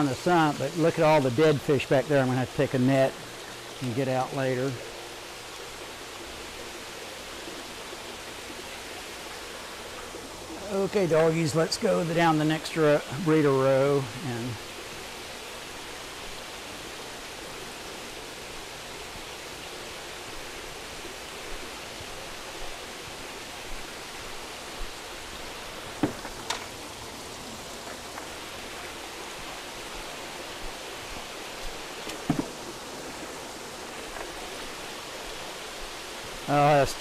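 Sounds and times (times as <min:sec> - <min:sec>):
running water rushing: 0:00.0 - 0:37.0
faint knocks: 0:32.0 - 0:32.8.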